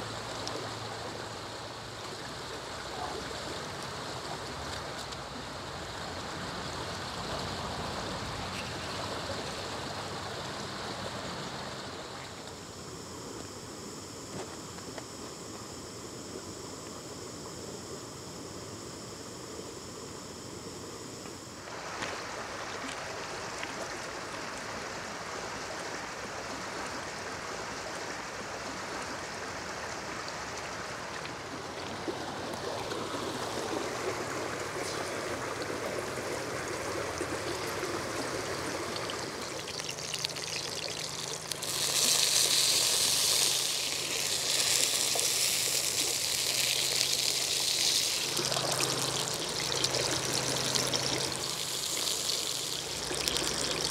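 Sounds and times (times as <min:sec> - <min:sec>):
stream running over stones: 0:21.5 - 0:53.9
meat sizzling on griddle: 0:39.8 - 0:53.8.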